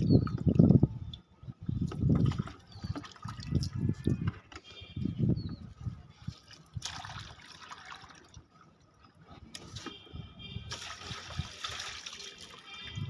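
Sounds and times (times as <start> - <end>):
water pouring onto soil: 6.2 - 8.6, 10.7 - 13.0.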